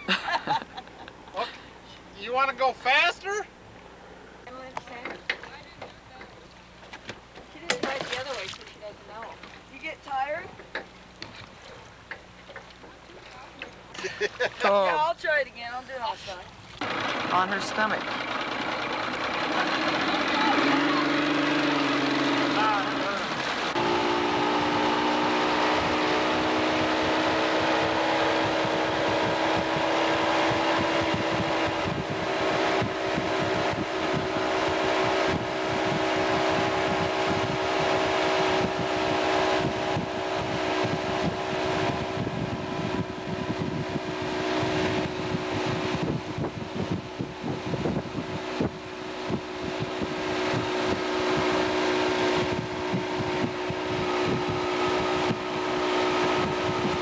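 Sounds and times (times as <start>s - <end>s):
motorboat engine running: 0.0s - 57.0s
wind buffeting microphone: 19.4s - 57.0s.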